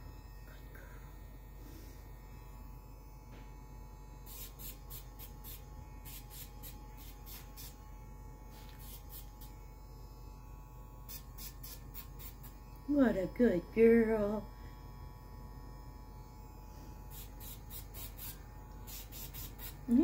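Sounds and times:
nail grinder humming: 4.2s - 20.0s.

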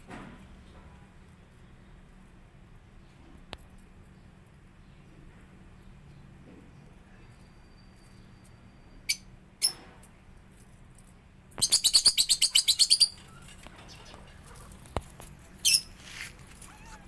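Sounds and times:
small bird chirping: 5.8s - 9.8s, 11.5s - 17.0s.

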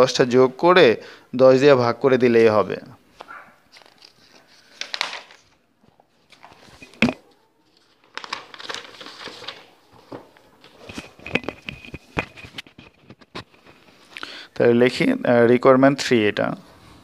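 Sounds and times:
paper pages rustling: 3.1s - 14.2s.

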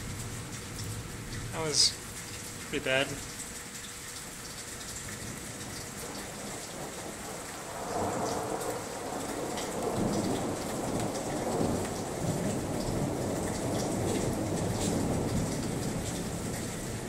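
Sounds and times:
drips and spatters: 0.0s - 17.0s
steady rain falling: 0.0s - 17.0s
thunder rumbling: 5.2s - 17.0s.

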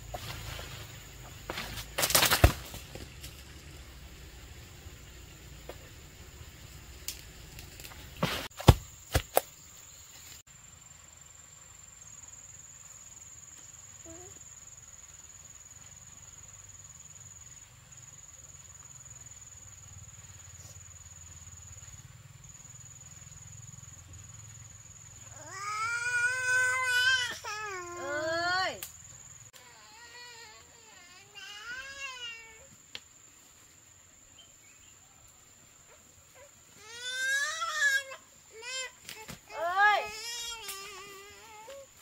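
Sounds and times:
insect trilling: 18.9s - 33.0s, 36.3s - 42.0s
small child crying: 25.3s - 28.4s, 29.6s - 32.7s, 36.8s - 41.9s.

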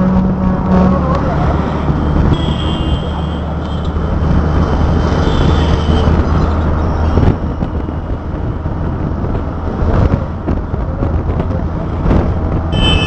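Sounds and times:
low engine drone: 0.0s - 12.7s
road noise: 0.0s - 13.0s.

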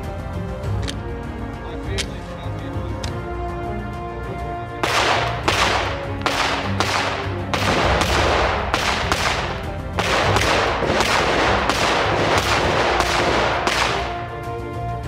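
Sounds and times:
background music: 0.0s - 15.0s
pistol shots: 4.8s - 14.3s.

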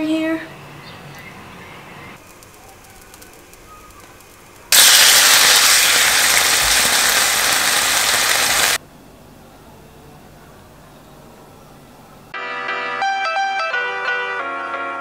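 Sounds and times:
chicken sizzling in frying pan: 2.2s - 8.8s.

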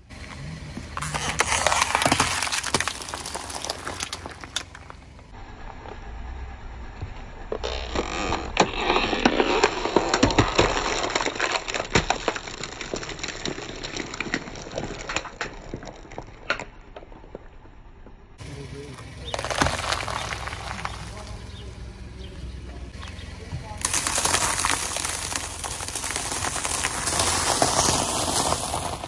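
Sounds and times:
crunching burst: 0.9s - 5.5s, 7.6s - 16.5s, 18.4s - 21.8s, 23.7s - 29.0s
plastic crackling and eggshells cracking: 9.2s - 17.4s, 19.3s - 21.1s, 23.8s - 29.0s.

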